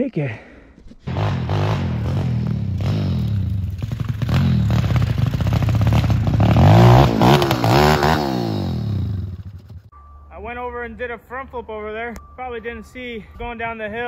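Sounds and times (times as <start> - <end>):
small motorbike engine revving: 1.1 - 9.6.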